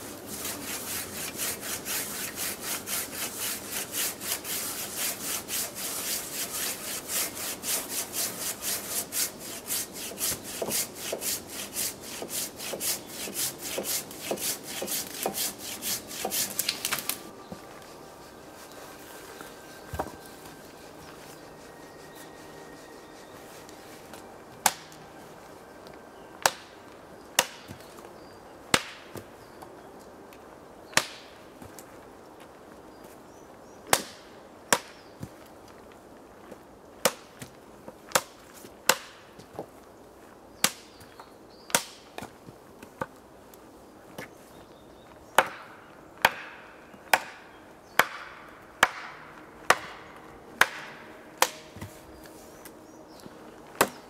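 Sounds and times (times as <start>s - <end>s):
axe chopping wood: 24.6s - 25.0s, 26.4s - 26.7s, 27.4s - 27.9s, 28.7s - 29.2s, 38.1s - 39.2s, 41.7s - 42.0s, 45.4s - 51.9s.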